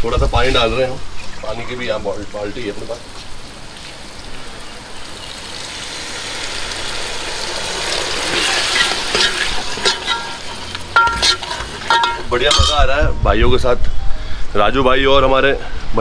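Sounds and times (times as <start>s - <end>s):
curry sizzling in a pan: 0.3s - 12.8s
spoon clinking against pan: 8.8s - 12.8s.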